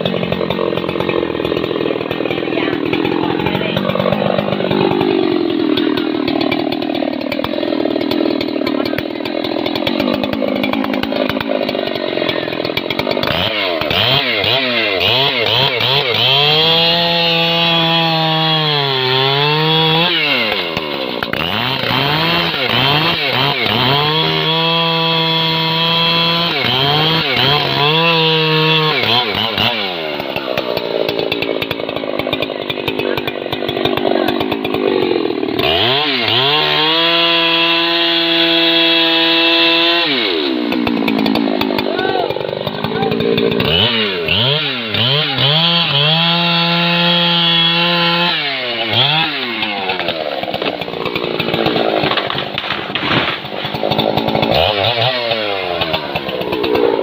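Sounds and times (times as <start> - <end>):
chainsaw sawing into tree trunk: 0.0 - 57.0.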